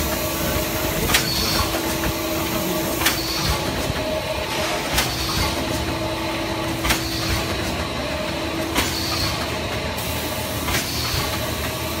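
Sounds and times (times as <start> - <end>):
steady machine hum: 0.0 - 12.0
machine press clack: 6.8 - 9.8.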